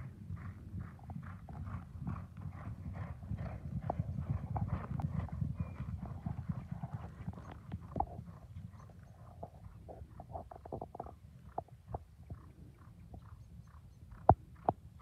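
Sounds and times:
horses galloping on sand: 0:00.0 - 0:15.0.

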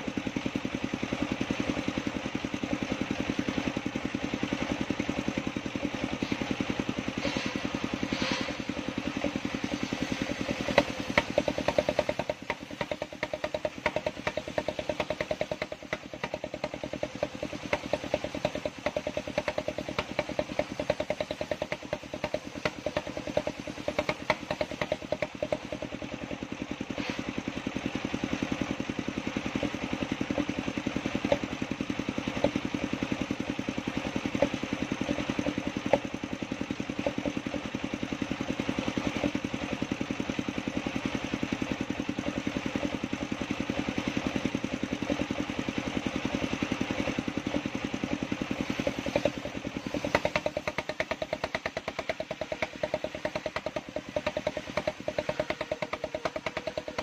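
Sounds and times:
sawmill engine running: 0:00.0 - 0:57.0
saw blade cutting wood: 0:06.1 - 0:26.1, 0:26.9 - 0:27.4, 0:46.2 - 0:57.0.

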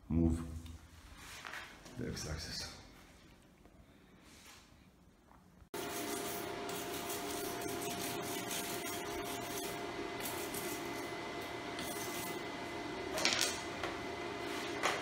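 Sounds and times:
loud welding rasp: 0:05.8 - 0:12.5
arc welder humming and hissing: 0:05.8 - 0:15.0.

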